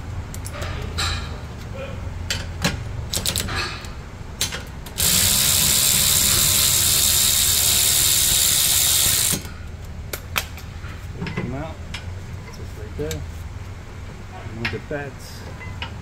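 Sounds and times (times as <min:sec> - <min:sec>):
power ratchet spinning: 0:04.9 - 0:09.5.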